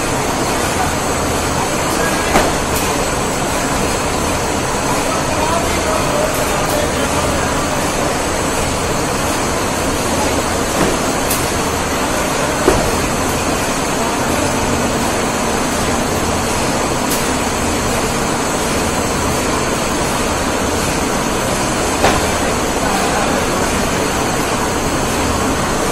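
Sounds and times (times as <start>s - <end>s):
conveyor mechanical din: 0.0s - 25.9s
sharp knocks: 22.0s - 22.4s.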